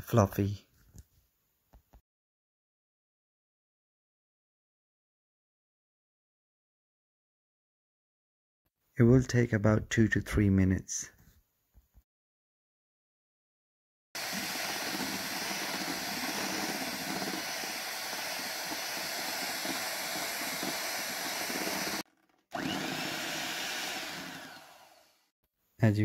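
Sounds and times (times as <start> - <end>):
electric hand mixer running: 14.2 - 25.3.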